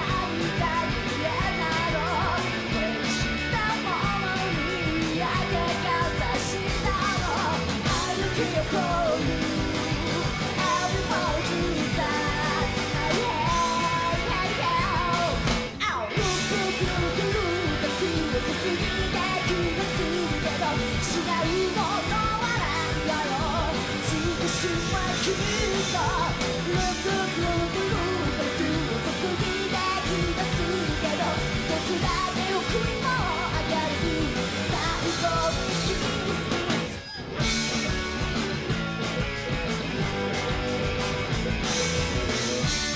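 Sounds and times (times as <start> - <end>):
woman singing lead: 0.0 - 38.0
live rock band playing: 0.0 - 42.9.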